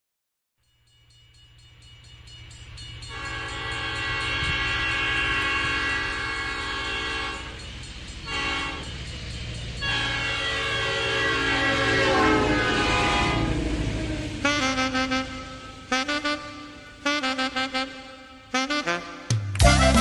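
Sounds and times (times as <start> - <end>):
train rumbling: 1.6 - 20.0
train horn blasts: 3.1 - 7.6, 8.3 - 8.9, 9.8 - 20.0.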